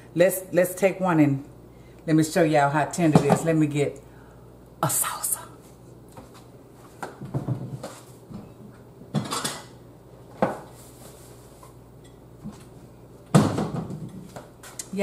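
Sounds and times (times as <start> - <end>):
dishes and cutlery clinking: 9.2 - 9.7.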